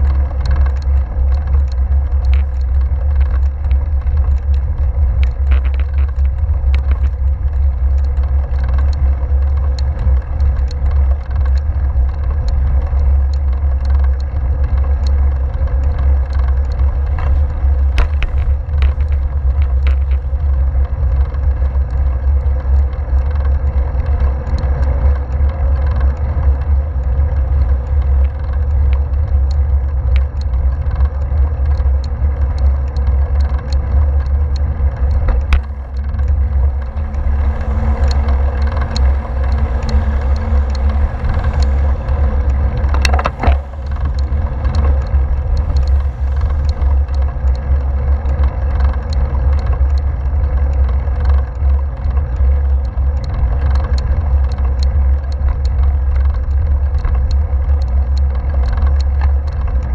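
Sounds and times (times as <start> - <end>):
bicycle tyres on asphalt: 0.0 - 59.9
wind rumble: 0.0 - 59.9
car passing: 35.6 - 47.9.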